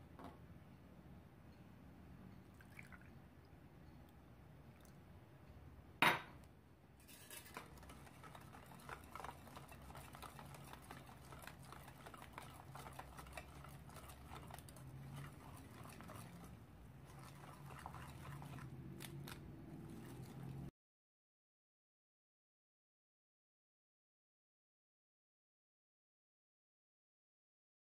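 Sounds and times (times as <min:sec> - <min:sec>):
whisk scraping ceramic bowl: 0:07.0 - 0:20.7.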